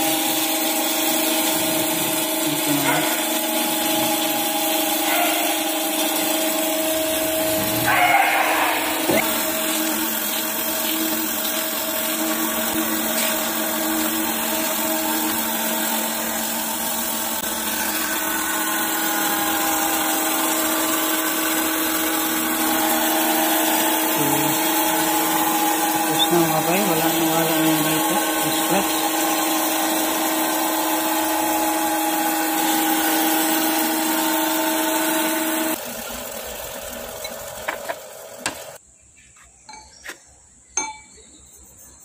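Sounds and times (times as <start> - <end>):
grinding machine humming: 0.0 - 38.8.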